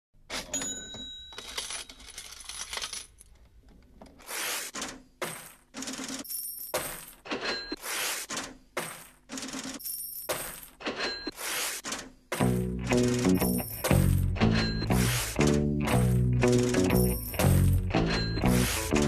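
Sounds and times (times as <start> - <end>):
metal objects clinking: 12.9 - 15.2, 15.9 - 18.9.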